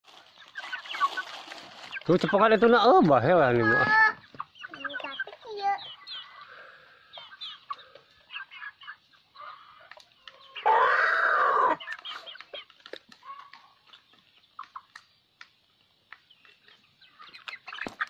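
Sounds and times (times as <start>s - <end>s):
chicks peeping and clucking: 0.0s - 18.0s
harsh chicken call: 3.5s - 4.2s, 6.2s - 12.3s.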